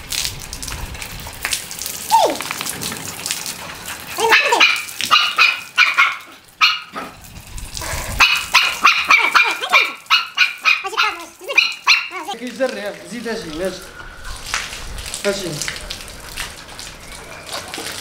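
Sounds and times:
water splashing from garden hose: 0.0s - 18.0s
dogs barking and yipping: 3.6s - 7.2s, 7.8s - 12.4s.

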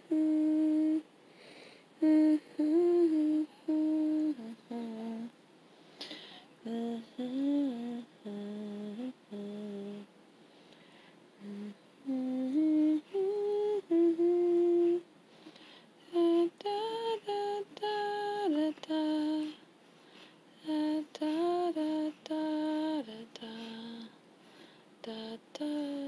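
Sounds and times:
person humming a lullaby: 0.0s - 1.1s, 2.0s - 5.3s, 6.0s - 10.1s, 11.4s - 15.1s, 16.0s - 19.6s, 20.6s - 24.2s, 25.0s - 26.0s.

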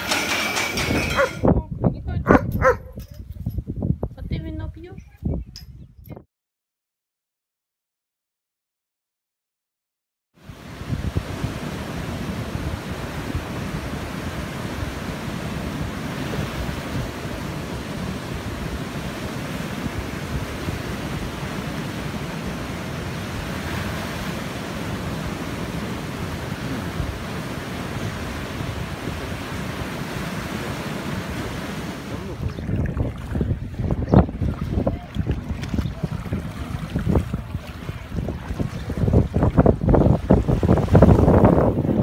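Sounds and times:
wind buffeting microphone: 0.6s - 6.2s, 10.5s - 42.0s
waves breaking on rocky shore: 10.4s - 42.0s.

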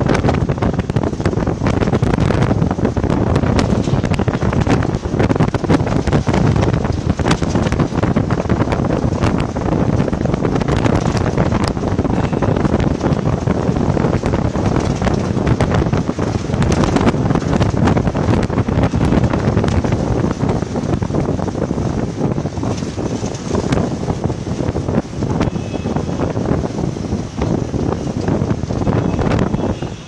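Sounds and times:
rumble of moving vehicles: 0.0s - 30.0s
wind buffeting microphone: 0.0s - 30.0s.

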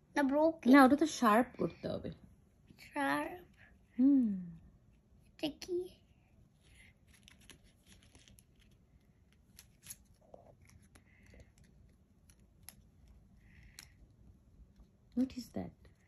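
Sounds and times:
paper and plastic rustling: 6.6s - 13.1s.

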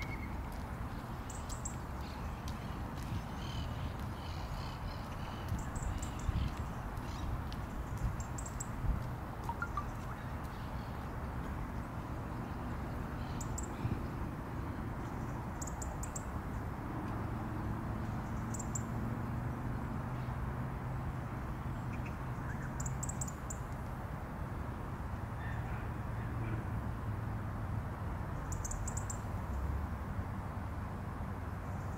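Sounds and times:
robin high tic calls: 0.0s - 0.5s, 1.1s - 8.8s, 9.4s - 11.1s, 12.4s - 14.2s, 28.5s - 29.3s
distant city traffic rumble: 0.0s - 31.9s.

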